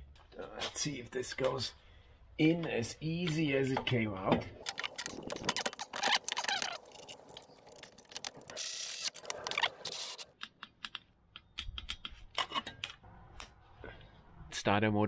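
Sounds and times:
hand tools clicking and scraping: 4.6s - 10.9s.

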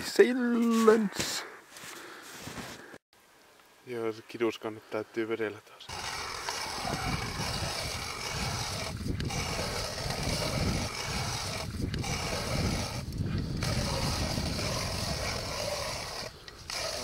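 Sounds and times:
ice auger grinding through ice: 5.9s - 17.0s.

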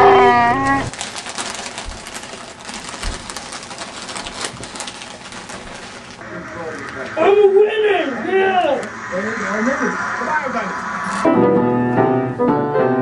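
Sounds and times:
foil chip bag crinkling: 0.4s - 7.1s.

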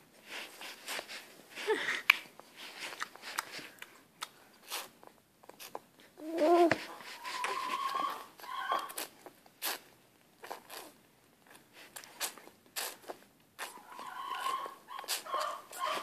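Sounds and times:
baby sucking and smacking: 2.0s - 16.0s
soft baby vocalization: 6.1s - 9.8s.

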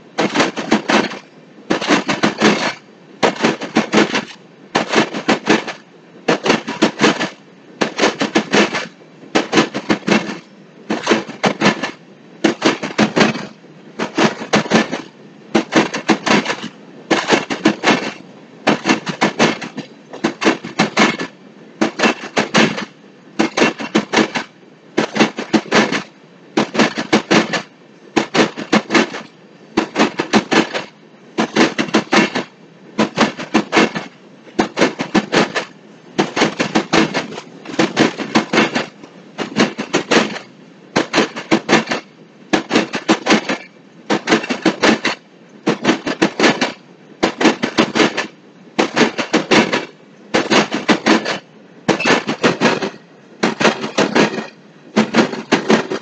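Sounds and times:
train wheels clacking over rail joint: 0.1s - 56.0s.

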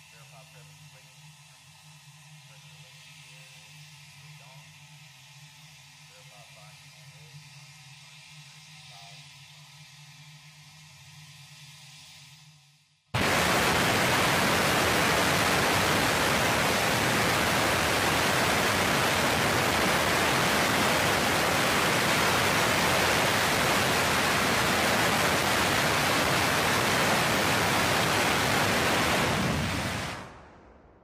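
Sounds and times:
rocket motor exhaust roar: 13.2s - 31.0s.

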